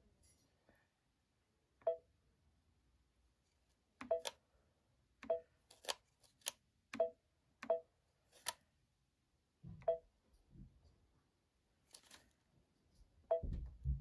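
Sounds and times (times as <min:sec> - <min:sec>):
touchscreen key beeps: 0:01.9 - 0:02.1, 0:04.0 - 0:04.4
stylus tapping screen: 0:04.0 - 0:04.4, 0:05.2 - 0:08.6.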